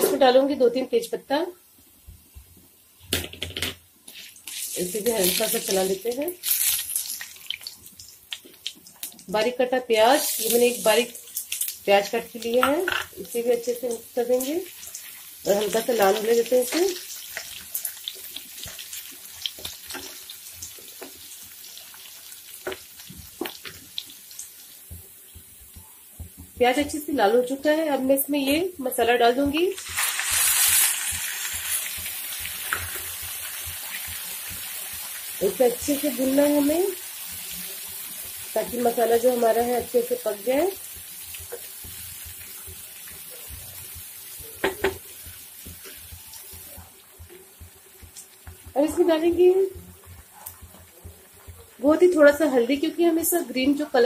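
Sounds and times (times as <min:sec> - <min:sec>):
onion sizzling in oil: 0:00.0 - 0:54.0
spatula stirring in pan: 0:40.8 - 0:52.8.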